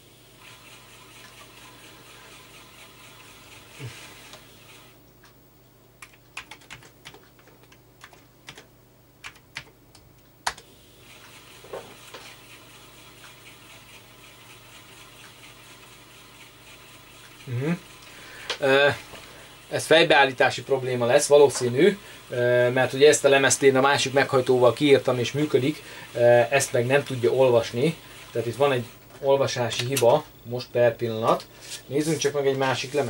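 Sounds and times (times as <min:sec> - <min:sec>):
steady low hiss: 0:00.0 - 0:33.0.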